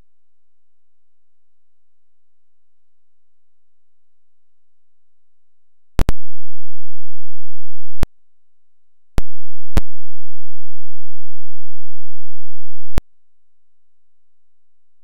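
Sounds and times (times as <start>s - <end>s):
sharp digital clicks: 9.2s - 10.2s.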